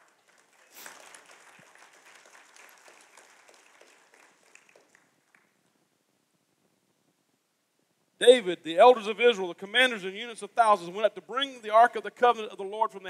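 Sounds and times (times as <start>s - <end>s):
congregation clapping: 0.0s - 5.7s.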